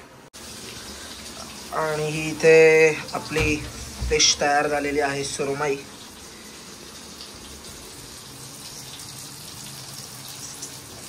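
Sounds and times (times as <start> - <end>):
fish sizzling in a pan: 6.0 - 11.0.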